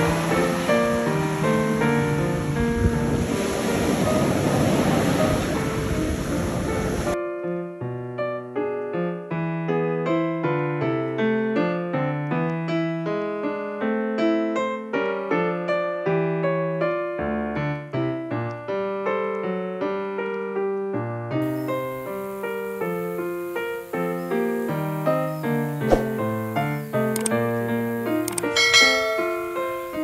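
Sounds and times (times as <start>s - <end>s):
solo piano music: 0.0s - 30.0s.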